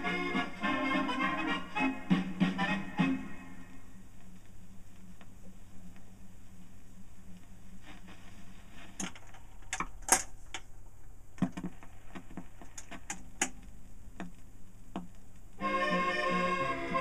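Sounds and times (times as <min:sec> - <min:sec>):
low steady hum: 0:00.0 - 0:17.0
record changer clicks and clunks: 0:08.8 - 0:10.7, 0:11.4 - 0:15.6.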